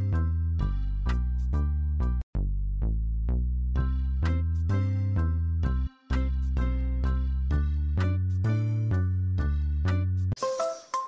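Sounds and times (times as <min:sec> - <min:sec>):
background music with heavy bass: 0:00.0 - 0:10.4.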